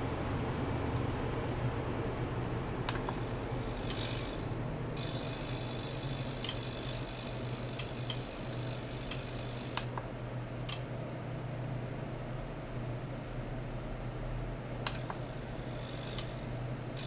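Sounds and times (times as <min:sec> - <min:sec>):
clicks: 0:02.9 - 0:04.3, 0:14.8 - 0:15.3
high rattling ultrasonic hiss: 0:02.9 - 0:09.9, 0:14.9 - 0:17.0.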